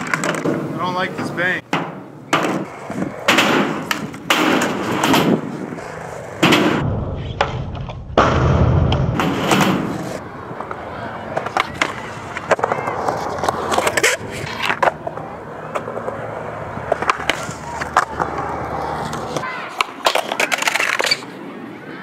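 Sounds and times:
skateboard clattering on concrete: 0:00.0 - 0:00.8, 0:01.7 - 0:06.8, 0:09.2 - 0:21.2
skateboard wheels rolling: 0:00.0 - 0:22.0
wheels rumbling on metal ramp: 0:01.7 - 0:10.2.

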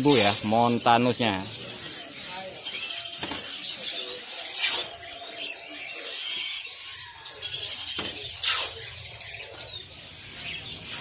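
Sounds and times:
songbirds chirping and twittering: 0:00.0 - 0:11.0
short rasping hisses: 0:08.4 - 0:08.8.

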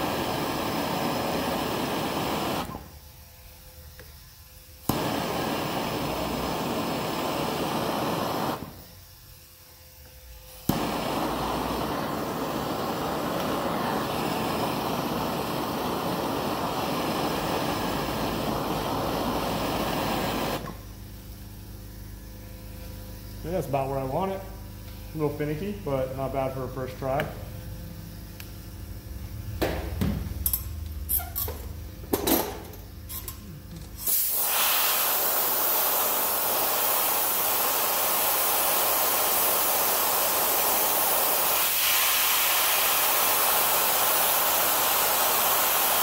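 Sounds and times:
gas torch flame hissing: 0:00.0 - 0:03.0, 0:03.8 - 0:09.2, 0:10.0 - 0:46.0
torch igniter click: 0:04.9 - 0:08.7, 0:10.6 - 0:20.8.

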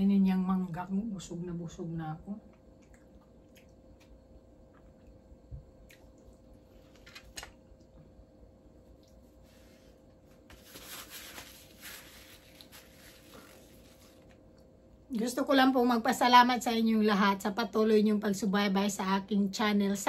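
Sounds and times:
paper napkin rustling and crumpling: 0:09.4 - 0:14.4.

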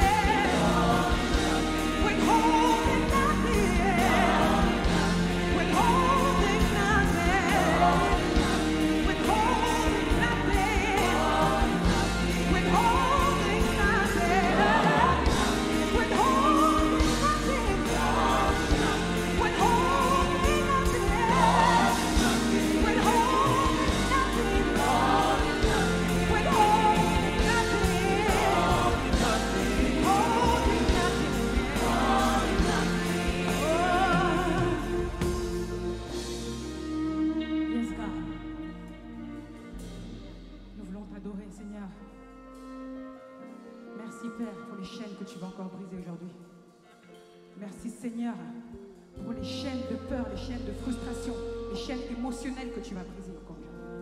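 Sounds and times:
backing vocalists singing: 0:00.0 - 0:36.2
woman singing gospel lead: 0:00.0 - 0:36.2
band with keyboards drums and bass: 0:00.0 - 0:37.3.

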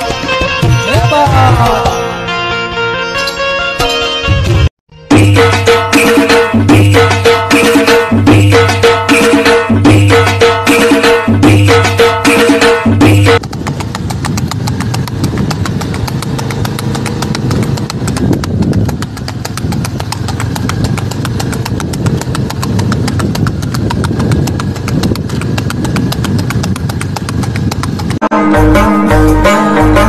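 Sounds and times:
hooves clip-clopping on hard road: 0:00.0 - 0:02.0, 0:05.9 - 0:28.2
folk music with tabla: 0:00.0 - 0:30.0.

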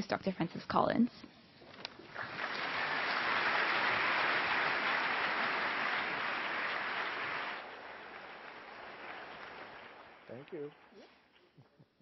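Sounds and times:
large audience applauding: 0:02.0 - 0:11.0.

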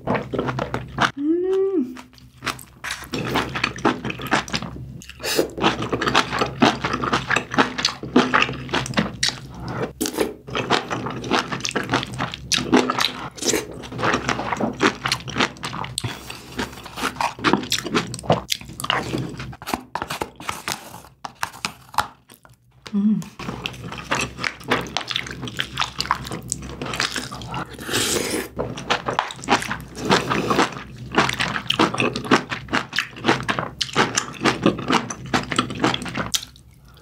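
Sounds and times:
person chewing with wet smacks: 0:23.6 - 0:27.7, 0:28.8 - 0:37.0.

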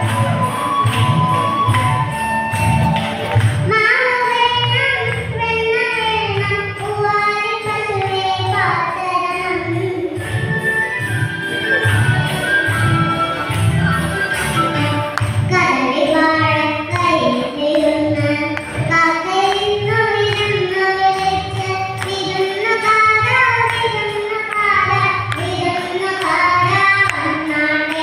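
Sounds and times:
girl singing into microphone: 0:03.5 - 0:10.4, 0:15.4 - 0:28.0.

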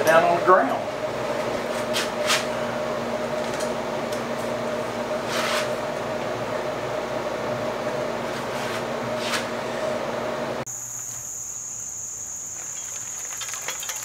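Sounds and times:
air conditioner humming: 0:00.0 - 0:14.0
bicycle scuffs and rattles: 0:12.6 - 0:14.0.

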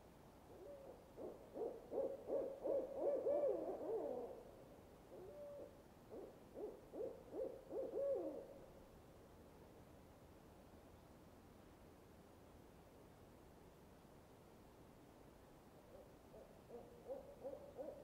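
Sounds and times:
owl hooting: 0:00.5 - 0:04.4, 0:05.1 - 0:08.5, 0:15.9 - 0:18.0.

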